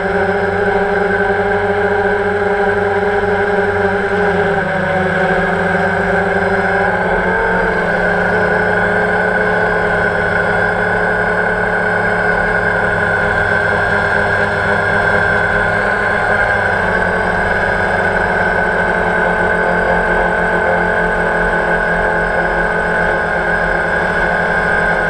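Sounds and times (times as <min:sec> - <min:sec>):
drone motors whining: 0:00.0 - 0:25.0.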